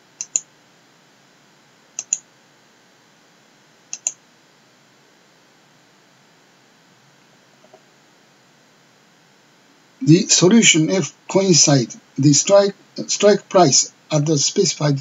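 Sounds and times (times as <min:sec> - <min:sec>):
faint steady hiss: 0:00.0 - 0:15.0
mouse button clicks: 0:00.2 - 0:00.4, 0:02.0 - 0:02.2, 0:03.9 - 0:04.2.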